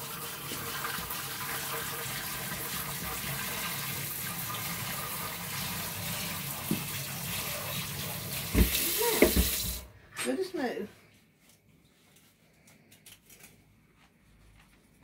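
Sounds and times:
utensil being washed: 0:00.0 - 0:10.0
tap running: 0:06.5 - 0:07.0, 0:08.4 - 0:09.9.

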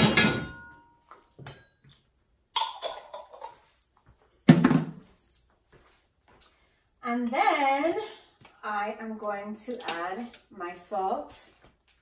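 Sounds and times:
kitchen items knocking and rattling: 0:00.0 - 0:01.9, 0:04.4 - 0:05.2.

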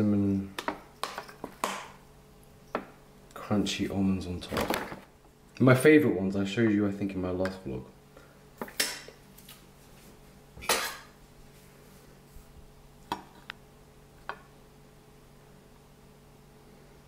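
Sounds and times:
faint steady hum: 0:00.0 - 0:17.0
dishes and cutlery clinking: 0:10.6 - 0:11.1.

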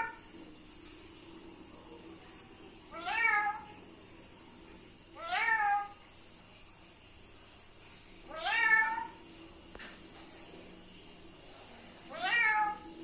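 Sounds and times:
parrot mimicking cat meow: 0:02.9 - 0:03.7, 0:05.2 - 0:06.0, 0:08.3 - 0:09.2.

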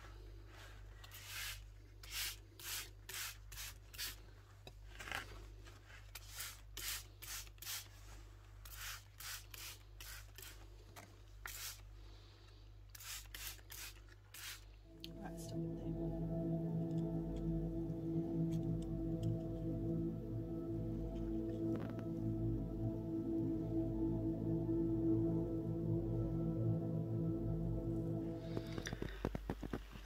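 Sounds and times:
spray bottle squirting: 0:12.9 - 0:14.7
steady low hum: 0:14.8 - 0:29.6.

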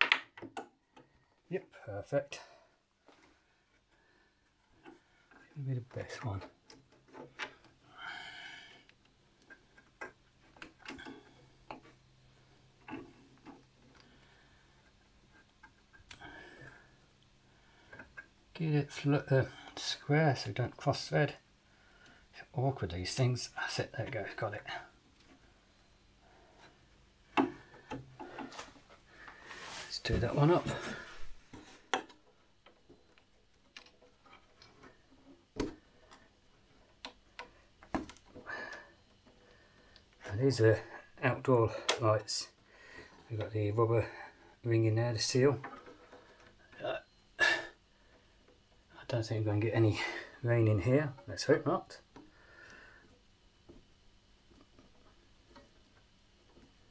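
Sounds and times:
clicks and taps on wood: 0:00.0 - 0:01.1, 0:27.4 - 0:28.7
low steady hum: 0:00.0 - 0:56.9.

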